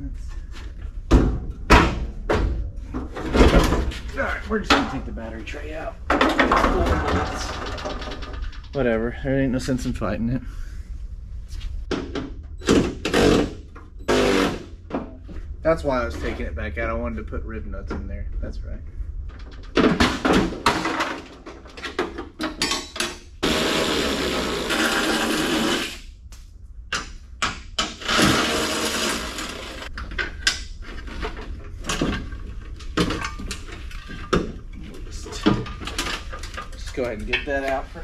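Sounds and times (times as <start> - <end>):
metal clanks and knocks: 0.9 - 9.0, 19.2 - 23.4, 26.9 - 38.0
power driver running: 23.4 - 26.0, 27.9 - 29.9.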